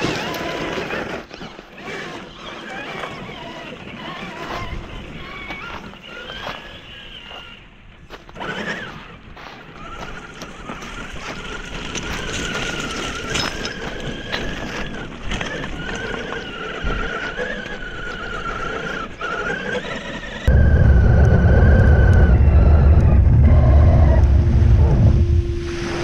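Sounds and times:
tyres crunching over pebbles: 0:00.0 - 0:20.5
electric motor whining: 0:00.0 - 0:26.0
loud low rumble: 0:20.5 - 0:26.0.

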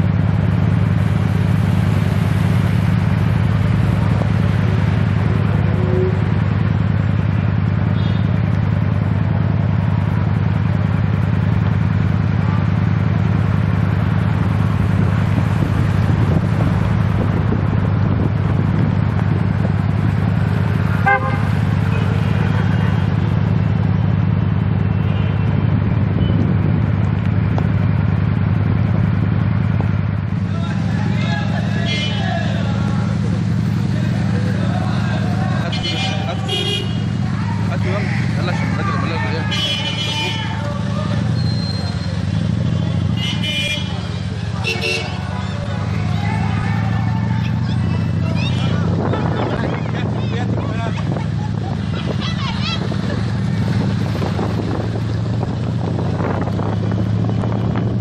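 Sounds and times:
cars passing on wet road: 0:00.0 - 0:58.0
low traffic rumble: 0:00.0 - 0:58.0
car horns tooting: 0:07.8 - 0:08.4, 0:20.8 - 0:23.1, 0:31.4 - 0:32.7, 0:35.5 - 0:37.3, 0:38.9 - 0:49.8.

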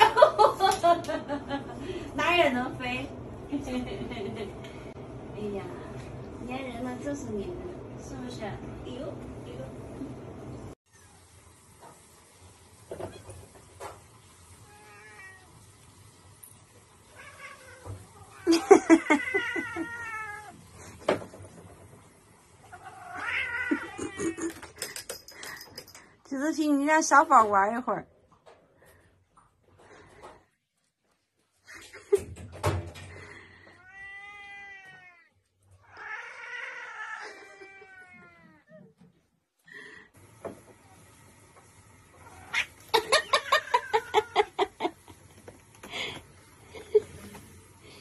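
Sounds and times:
cat yowling: 0:14.6 - 0:15.6, 0:17.2 - 0:20.6, 0:22.7 - 0:24.5, 0:33.8 - 0:38.9, 0:42.2 - 0:44.6
cat meowing: 0:14.6 - 0:15.7, 0:17.1 - 0:20.6, 0:22.6 - 0:24.5, 0:33.8 - 0:38.8.

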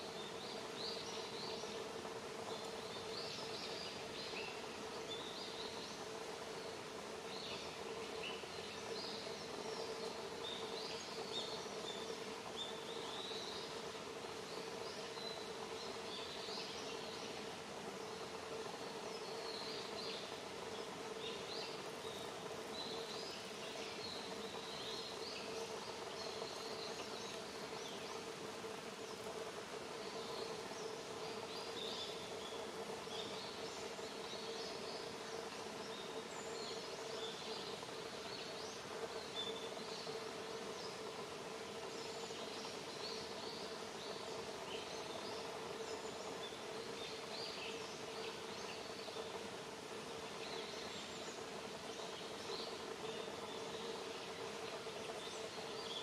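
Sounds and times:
small birds chirping: 0:00.0 - 0:56.0.

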